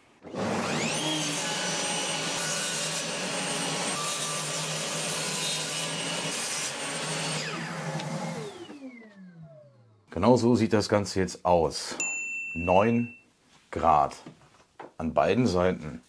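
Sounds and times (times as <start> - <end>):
table saw cutting wood: 0.2 - 10.0
saw motor winding down: 0.3 - 10.0.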